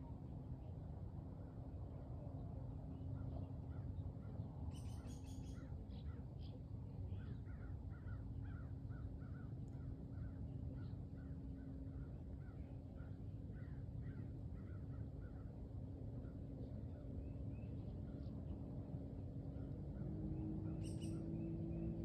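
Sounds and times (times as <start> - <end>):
low outdoor rumble: 0.0 - 22.0
bird calls: 20.0 - 22.0.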